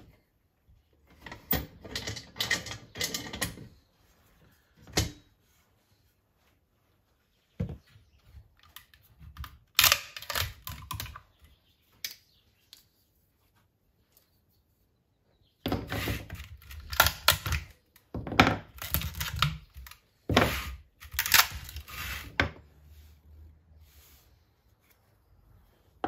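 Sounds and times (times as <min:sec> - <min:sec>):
metal clicks and clanks: 0:01.1 - 0:03.8.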